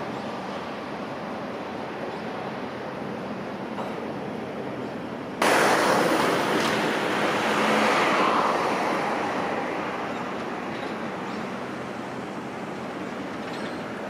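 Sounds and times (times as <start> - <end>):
road traffic rumble: 0.0 - 14.0
vehicle passing close by: 5.4 - 10.7.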